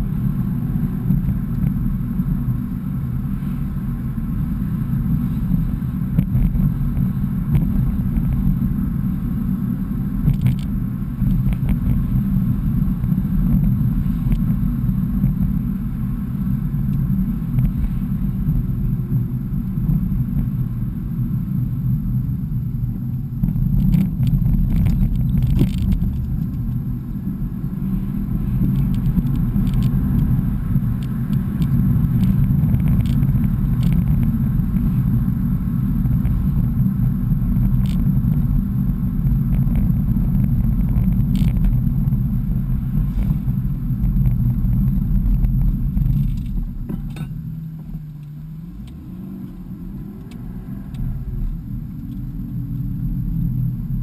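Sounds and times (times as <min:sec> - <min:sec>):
car engine and road rumble: 0:00.0 - 0:54.0.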